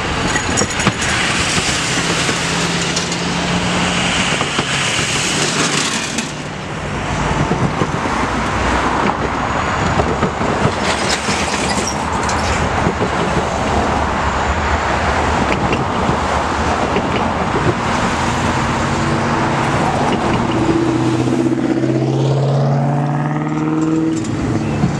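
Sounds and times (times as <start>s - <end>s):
tyre and road noise: 0.0s - 24.9s
car engine revving up: 18.1s - 24.6s.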